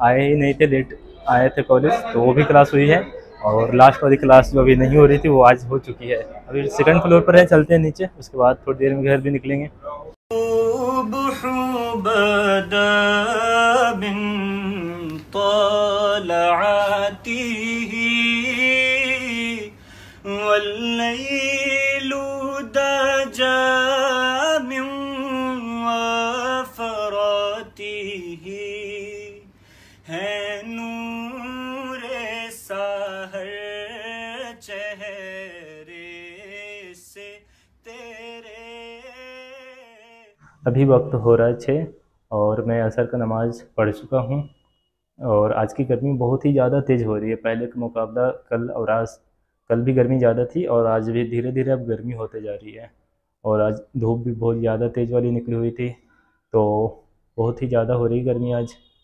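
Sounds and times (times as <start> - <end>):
person singing in chant-like style: 10.3 - 41.3.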